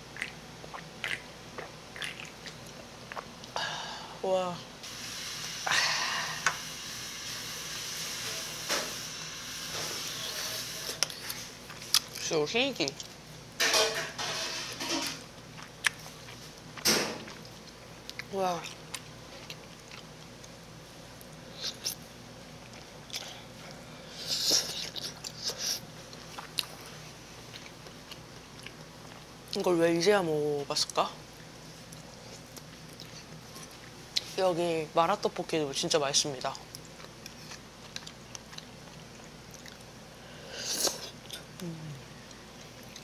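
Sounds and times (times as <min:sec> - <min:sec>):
steady background hiss: 0:00.0 - 0:43.0
eating mouth sounds: 0:00.1 - 0:03.6, 0:24.2 - 0:26.8
wet chewing: 0:00.1 - 0:03.6, 0:11.0 - 0:13.1, 0:15.5 - 0:22.0, 0:22.6 - 0:29.6, 0:31.4 - 0:34.4, 0:36.6 - 0:40.0, 0:42.3 - 0:43.0.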